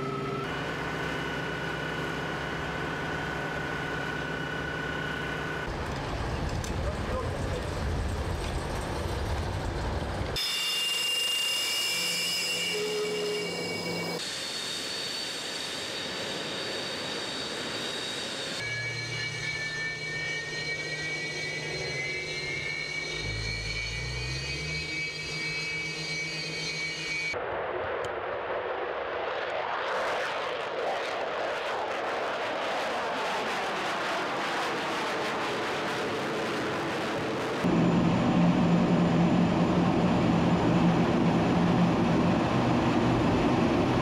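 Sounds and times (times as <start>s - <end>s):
jet turbine whine: 0.0s - 44.0s
jet roar flying past: 27.3s - 44.0s.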